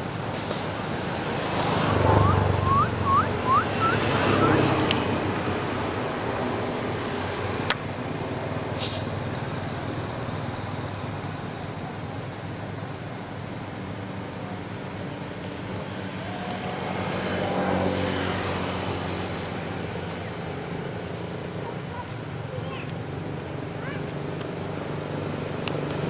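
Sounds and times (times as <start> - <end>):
vehicle engine passing: 0.0 - 7.7.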